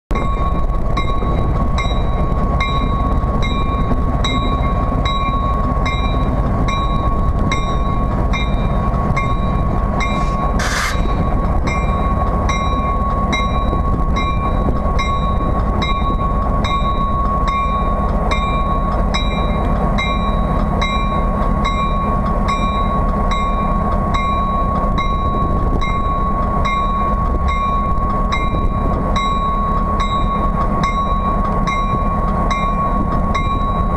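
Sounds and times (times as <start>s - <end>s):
locomotive engine rumbling: 0.1s - 33.9s
burst of hiss: 10.2s - 11.0s.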